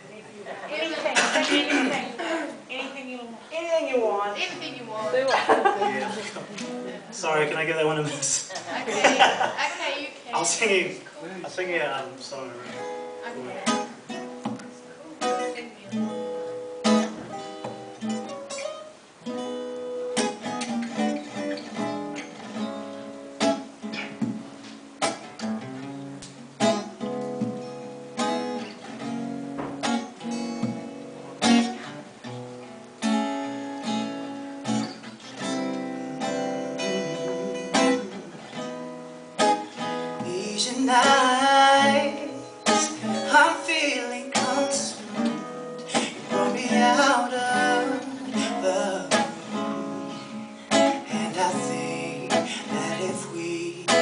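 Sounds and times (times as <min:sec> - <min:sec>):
acoustic guitar strumming: 0:03.7 - 0:08.4, 0:11.5 - 0:54.0
man singing: 0:36.6 - 0:38.4, 0:40.2 - 0:49.9, 0:50.7 - 0:54.0.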